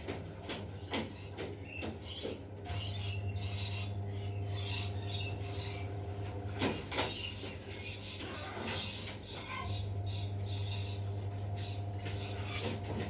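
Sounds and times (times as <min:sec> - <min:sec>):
steady low hum: 0:00.0 - 0:13.0
birds chirping and calling: 0:00.5 - 0:13.0
harsh bird calls: 0:00.9 - 0:13.0.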